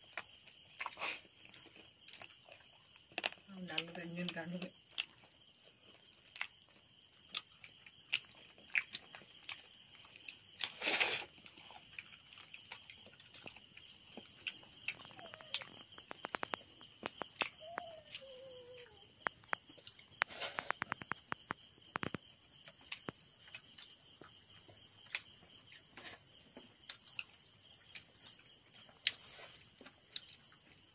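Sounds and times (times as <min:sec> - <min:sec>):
night insects chorus: 0:00.0 - 0:30.9.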